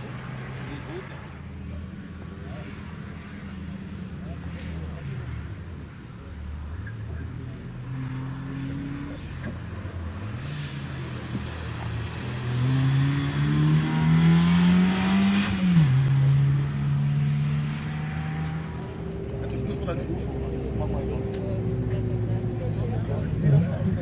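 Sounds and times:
car engine revving: 0.0 - 24.0.

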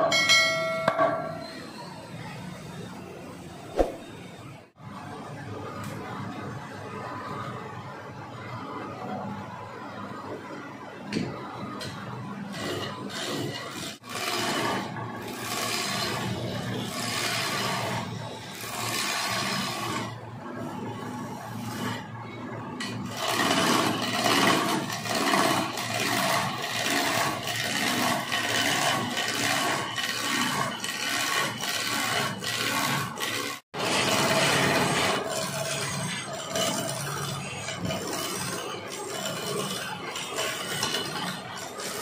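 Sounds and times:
chisel rasping on spinning wood: 13.1 - 20.1, 23.1 - 42.0.

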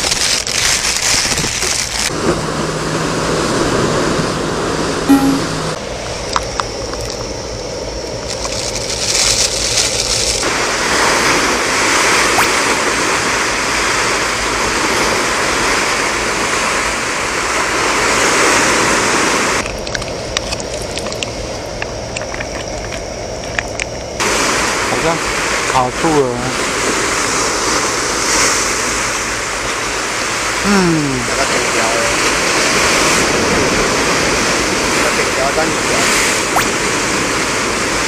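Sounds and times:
sea surf rushing: 2.1 - 5.8, 10.4 - 19.6, 24.2 - 38.0.

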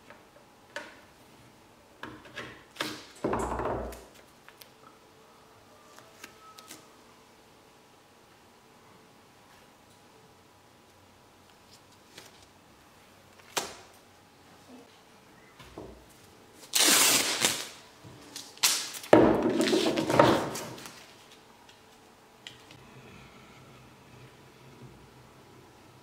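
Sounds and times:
masking tape ripping off roll: 16.6 - 21.4.

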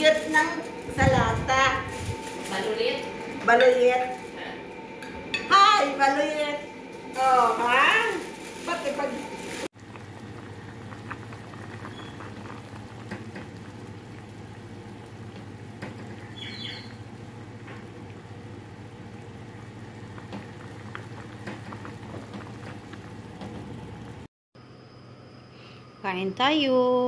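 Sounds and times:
low hum: 0.0 - 16.2
soup bubbling in a pot: 9.7 - 24.3.

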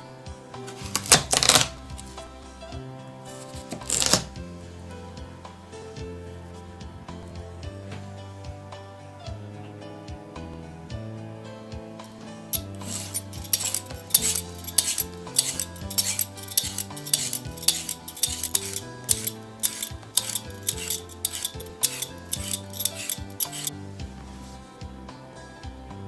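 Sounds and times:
soft background music: 0.0 - 26.0
peeler scraping vegetable skin: 0.7 - 2.2, 3.4 - 4.4, 12.6 - 23.7.

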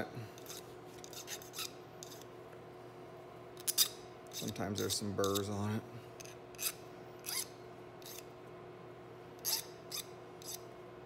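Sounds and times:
hand file scraping metal: 0.4 - 2.2, 3.7 - 5.5, 6.2 - 8.3, 9.4 - 10.6.

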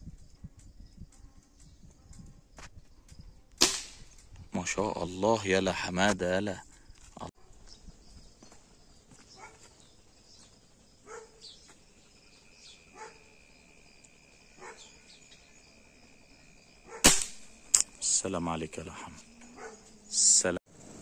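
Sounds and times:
distant dog barking: 9.3 - 9.8, 11.0 - 11.5, 12.9 - 13.4, 14.5 - 15.1, 16.8 - 17.1, 19.4 - 20.0.

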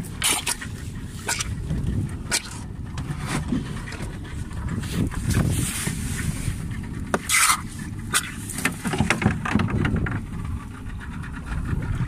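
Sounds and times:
low boat rumble: 0.0 - 12.0.

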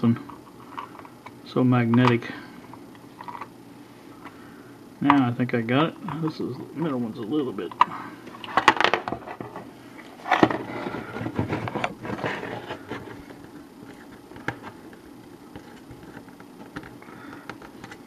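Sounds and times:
rubbing and scraping: 10.3 - 13.3.

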